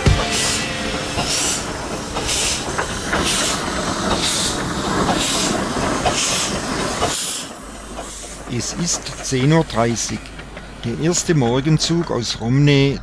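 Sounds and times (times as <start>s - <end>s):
steam locomotive chuffing: 0.0s - 13.0s
train rumble: 0.0s - 13.0s.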